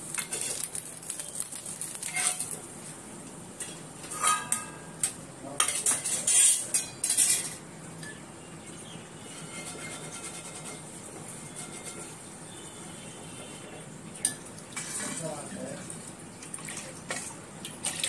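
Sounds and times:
spatula scraping on iron pan: 2.0s - 2.6s, 3.6s - 5.0s, 5.6s - 7.6s, 9.2s - 12.2s.

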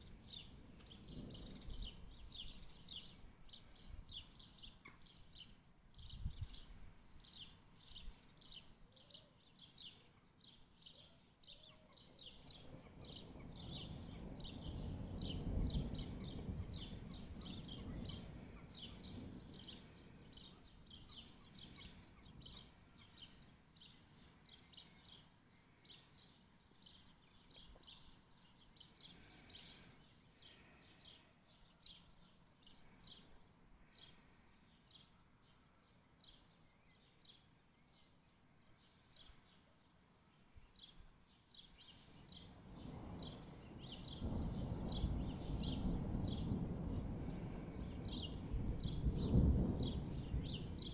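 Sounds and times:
distant thunder rumbling: 12.6s - 20.5s, 42.7s - 50.9s.

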